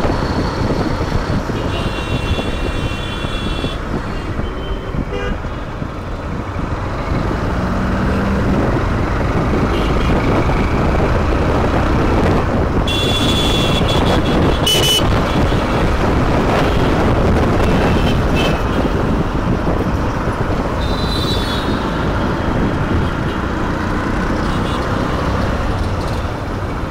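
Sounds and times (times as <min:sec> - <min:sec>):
motorcycle engine and road noise: 0:00.0 - 0:26.9
vehicle horn toots: 0:01.6 - 0:05.4, 0:12.9 - 0:15.2.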